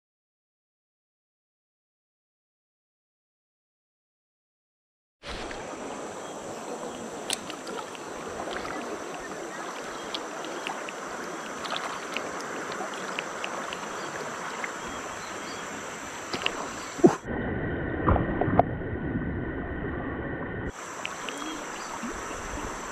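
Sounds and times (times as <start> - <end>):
small ticks and splashes: 5.3 - 17.0, 20.7 - 22.9
river rapids rushing over rocks: 5.6 - 17.0.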